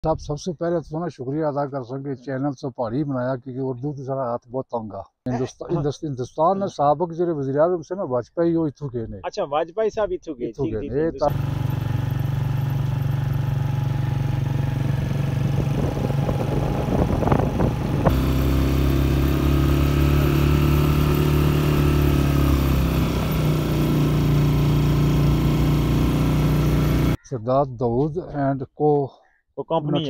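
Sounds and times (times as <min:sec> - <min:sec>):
deep hum: 0:11.3 - 0:27.2
vehicle engine running: 0:11.3 - 0:27.2.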